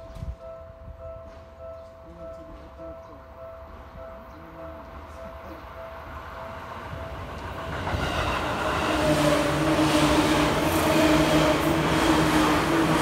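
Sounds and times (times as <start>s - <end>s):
electric train passing: 0.4s - 13.0s.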